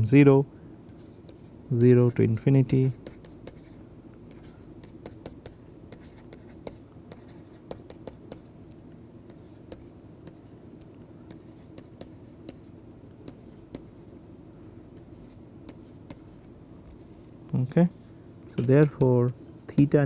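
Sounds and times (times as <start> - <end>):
low steady hum: 0.0 - 20.0
stylus scratching: 0.9 - 1.6, 2.7 - 14.2, 15.0 - 16.5, 18.5 - 20.0
stylus tapping on tablet: 4.8 - 14.0, 18.5 - 20.0.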